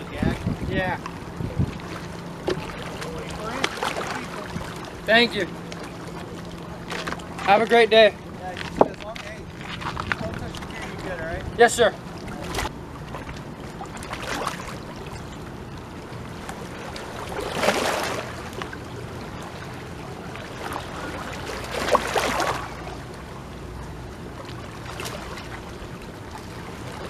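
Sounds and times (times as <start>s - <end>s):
waves lapping against rocks: 0.0s - 11.5s, 12.1s - 15.2s, 16.1s - 23.1s.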